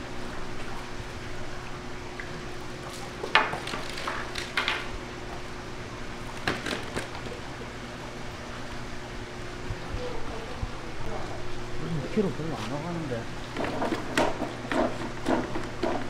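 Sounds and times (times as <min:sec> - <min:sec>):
steady low hum: 0:00.0 - 0:16.0
knocks and clatter on concrete: 0:03.2 - 0:04.9.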